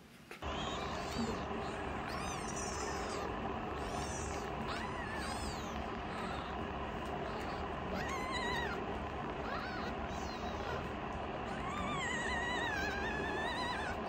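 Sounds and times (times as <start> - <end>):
kitten mewing: 0.4 - 14.0.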